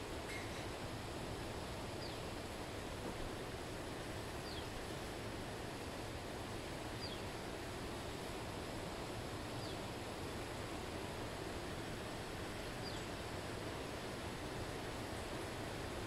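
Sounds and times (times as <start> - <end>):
outdoor ambience hiss: 0.0 - 16.0.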